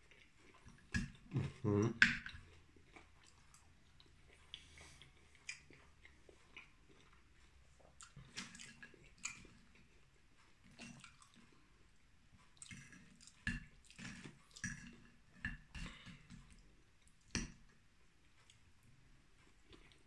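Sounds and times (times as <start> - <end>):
person chewing food: 0.0 - 20.0.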